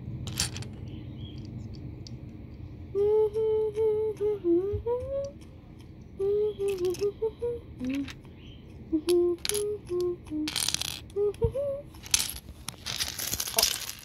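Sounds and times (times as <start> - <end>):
plastic bricks clicking: 0.3 - 2.3, 6.6 - 7.1, 7.8 - 8.3, 9.1 - 11.2, 11.9 - 14.0
person humming: 2.9 - 8.2, 8.8 - 12.0.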